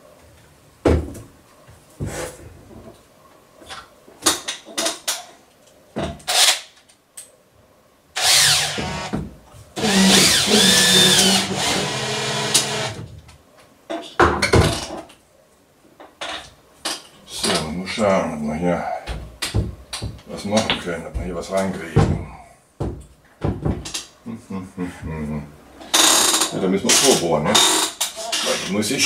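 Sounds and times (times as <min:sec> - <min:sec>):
cordless drill driving into wood: 0:08.2 - 0:09.1, 0:09.8 - 0:13.0.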